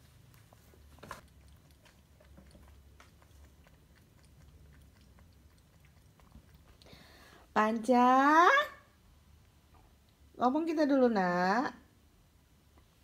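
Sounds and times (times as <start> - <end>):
cat chewing: 0.0 - 7.6.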